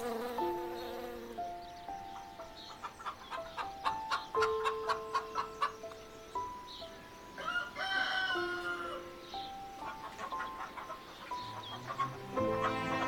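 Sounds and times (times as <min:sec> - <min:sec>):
plucked background music: 0:00.0 - 0:13.0
rooster crowing: 0:07.4 - 0:09.2.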